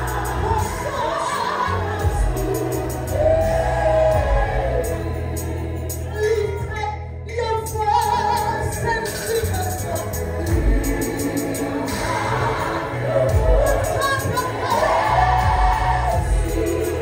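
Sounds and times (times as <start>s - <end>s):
music accompaniment with low bass: 0.0s - 17.0s
woman singing into a microphone: 7.4s - 10.0s, 11.1s - 17.0s.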